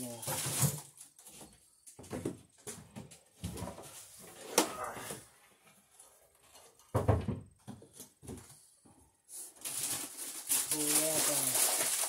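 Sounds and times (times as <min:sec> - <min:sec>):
wires rustling: 0:09.3 - 0:12.0.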